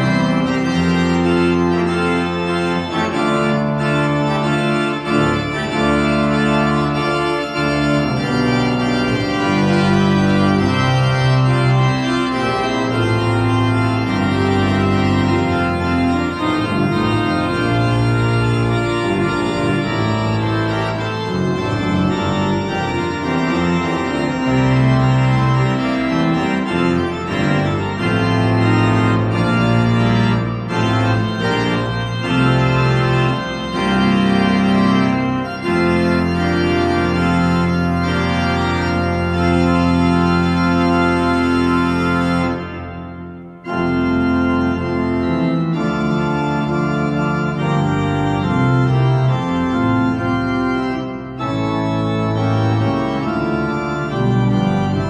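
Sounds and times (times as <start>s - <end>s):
pipe organ playing full chords: 0.0s - 55.0s.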